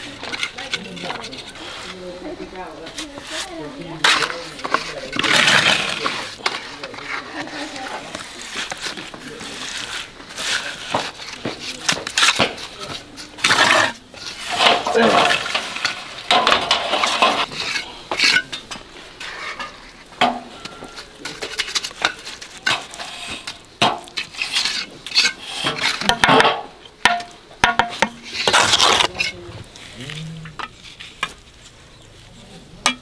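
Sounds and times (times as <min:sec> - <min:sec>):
trowels scraping mortar: 0:00.0 - 0:20.0, 0:20.7 - 0:26.6, 0:27.7 - 0:31.8
trowels knocking on metal pan: 0:25.6 - 0:28.7.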